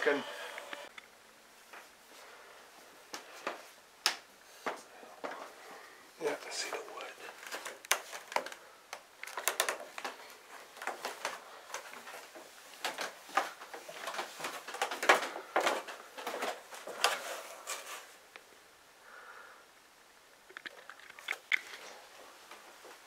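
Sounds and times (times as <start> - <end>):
footsteps on wooden stairs: 9.6 - 17.2.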